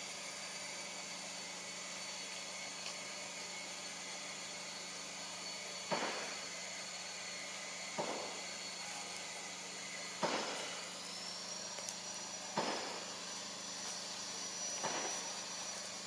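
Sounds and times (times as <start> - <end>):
thin high steady tone: 10.6 - 16.0.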